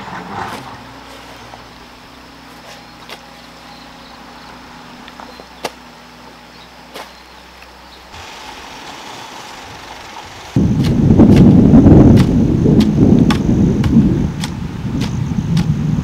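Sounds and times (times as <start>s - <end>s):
hoe striking soil: 0.0s - 1.7s, 2.4s - 3.6s, 5.0s - 5.8s, 6.9s - 15.8s
faint outdoor background hiss: 0.0s - 16.0s.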